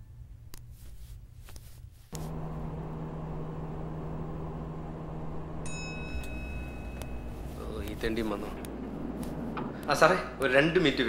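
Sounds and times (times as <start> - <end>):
quiet low rumble: 0.0 - 11.0
low machine hum: 2.1 - 11.0.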